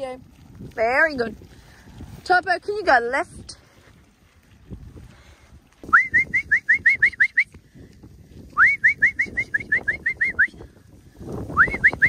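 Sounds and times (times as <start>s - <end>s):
low scuffling noise: 0.0s - 6.7s
person whistling short rising notes: 5.8s - 7.6s, 8.5s - 10.6s, 11.5s - 12.0s.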